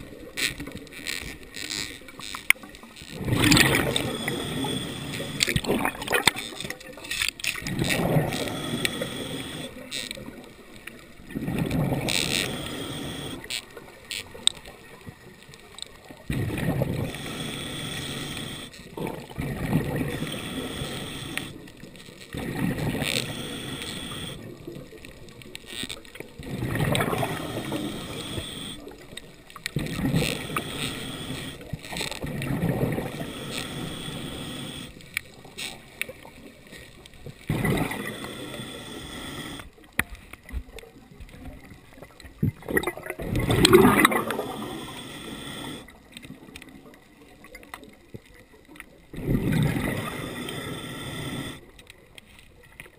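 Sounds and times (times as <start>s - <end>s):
exhaled bubbles rushing underwater: 2.6s - 7.0s, 7.6s - 14.0s, 16.1s - 35.5s, 36.1s - 38.8s, 40.9s - 47.7s, 49.0s - 51.6s
regulator inhalation hiss: 3.8s - 5.5s, 8.3s - 9.8s, 12.1s - 13.6s, 17.0s - 18.8s, 20.1s - 21.6s, 23.0s - 24.5s, 27.1s - 28.9s, 30.2s - 32.1s, 33.0s - 35.0s, 37.9s - 39.7s, 44.2s - 45.9s, 50.0s - 51.6s.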